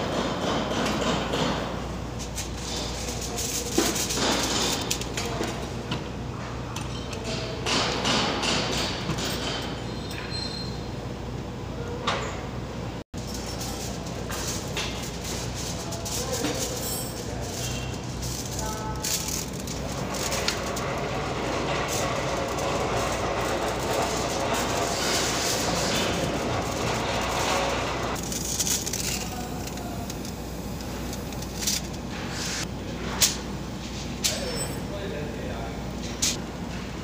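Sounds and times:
machine mechanical clatter: 0:00.0 - 0:05.8, 0:13.2 - 0:32.6
aluminium foil crinkling: 0:02.4 - 0:05.4, 0:13.2 - 0:32.2.

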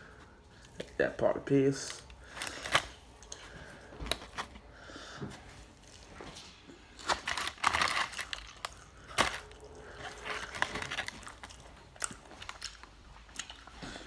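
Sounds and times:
paper liner crinkling: 0:06.8 - 0:13.0
mouth clicks and chewing: 0:07.3 - 0:14.0.

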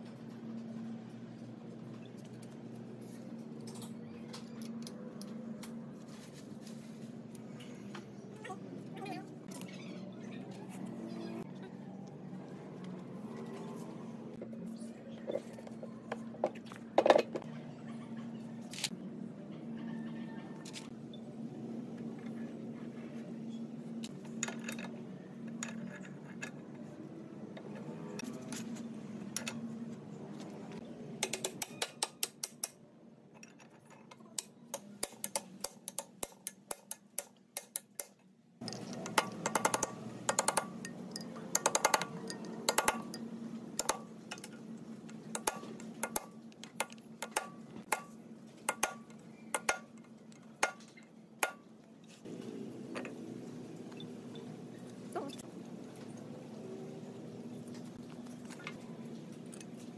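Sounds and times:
sharp metallic tool clicks: 0:31.2 - 0:32.8, 0:34.4 - 0:40.8, 0:43.8 - 0:44.5.

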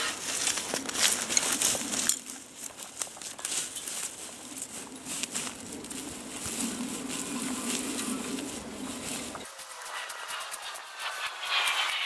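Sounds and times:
footsteps through dry grass: 0:00.0 - 0:11.9
dry stems snapping: 0:00.2 - 0:06.8.

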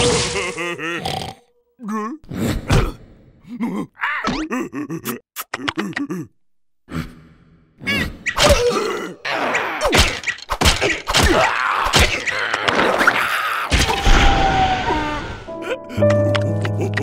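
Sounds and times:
squealing character cries: 0:07.8 - 0:09.9, 0:14.6 - 0:15.5
cartoon whacks and thumps: 0:09.8 - 0:14.3
music with held notes: 0:15.5 - 0:17.0.

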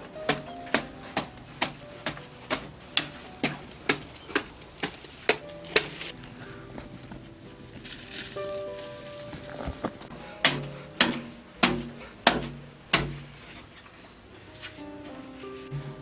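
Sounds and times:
hand tool striking hard clay: 0:00.2 - 0:06.1, 0:10.4 - 0:13.3.

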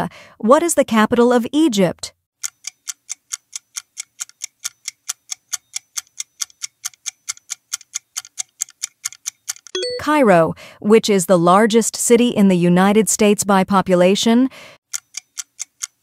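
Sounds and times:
clock ticking quickly: 0:02.4 - 0:09.7, 0:14.9 - 0:16.0.

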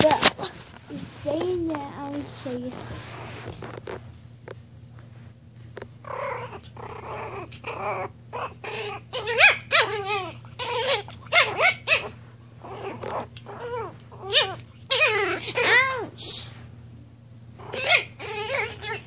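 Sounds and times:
puppy growling: 0:02.1 - 0:04.0, 0:05.6 - 0:16.2, 0:17.6 - 0:19.0
puppy yelping whines: 0:06.0 - 0:16.1, 0:17.6 - 0:19.0.

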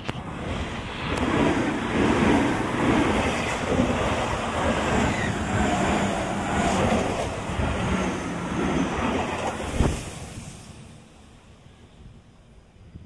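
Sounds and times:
train wheels clattering on rails: 0:01.0 - 0:10.2.

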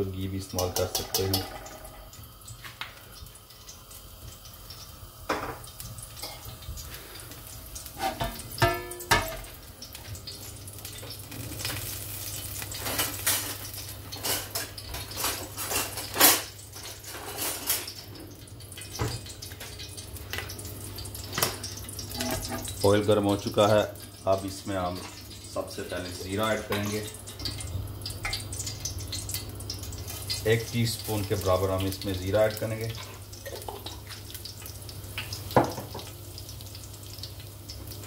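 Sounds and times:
hot oil crackling and popping: 0:00.0 - 0:38.0.

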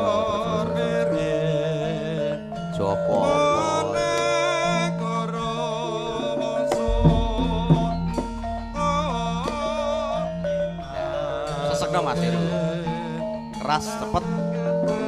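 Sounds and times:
metallophone notes: 0:00.0 - 0:15.0
person singing: 0:00.0 - 0:15.0
sharp drum strokes: 0:06.8 - 0:11.1
deep low tone: 0:06.8 - 0:11.7.

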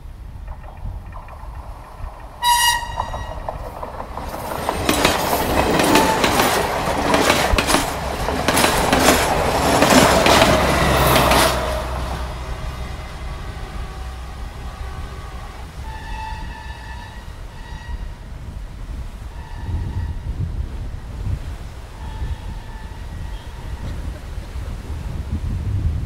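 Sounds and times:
diesel locomotive engine hum: 0:00.0 - 0:26.0
train wheels clacking on rails: 0:00.5 - 0:18.0
train horn toot: 0:02.4 - 0:03.5, 0:10.1 - 0:18.3, 0:19.2 - 0:20.4, 0:21.9 - 0:24.1.

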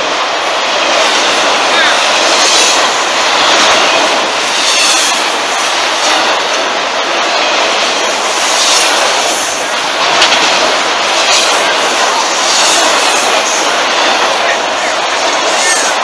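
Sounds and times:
steel train wheels rattling on rails: 0:00.0 - 0:16.0
high wheel squeal: 0:03.7 - 0:05.7.

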